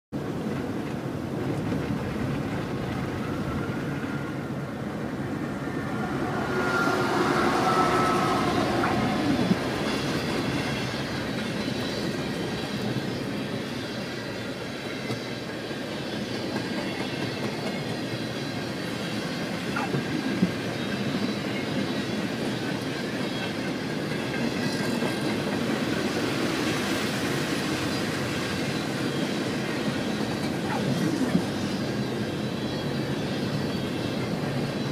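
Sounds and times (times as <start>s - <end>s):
freight train wheel and rail clatter: 0.1s - 34.9s
faint high tone: 5.4s - 10.1s.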